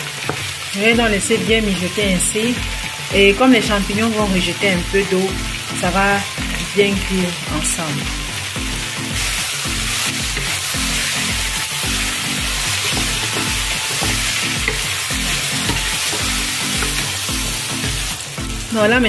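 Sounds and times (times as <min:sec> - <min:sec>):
background music with beat: 0:00.0 - 0:19.0
vegetables sizzling in oil: 0:00.0 - 0:19.0
wooden spatula stirring: 0:08.7 - 0:18.7.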